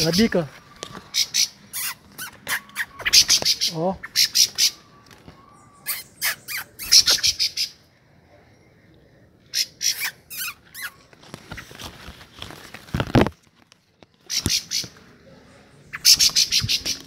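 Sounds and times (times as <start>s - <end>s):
thrushes harsh scolding calls: 1.1s - 4.9s, 5.8s - 7.8s, 9.5s - 11.7s, 14.2s - 15.0s, 15.8s - 17.0s.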